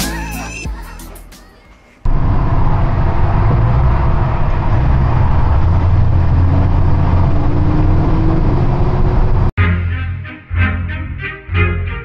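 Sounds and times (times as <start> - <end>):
truck engine and road rumble: 2.1 - 9.6.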